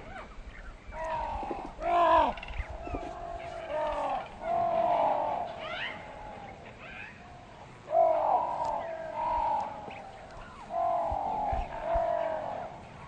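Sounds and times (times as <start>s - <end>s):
animal moaning calls: 1.0s - 6.4s.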